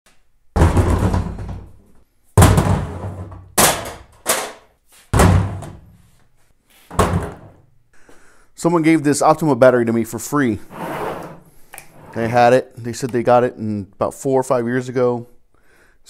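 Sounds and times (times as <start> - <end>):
heavy thuds on steel table: 5.1 - 5.9, 6.9 - 7.6.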